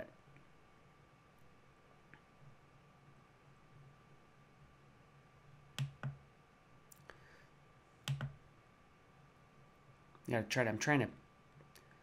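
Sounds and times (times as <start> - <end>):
computer mouse clicking: 5.8 - 6.2, 8.0 - 8.4.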